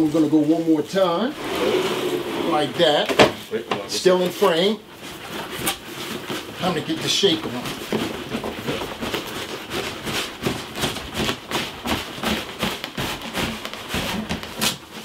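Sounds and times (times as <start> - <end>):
cardboard boxes scraping and knocking: 0.5 - 15.0.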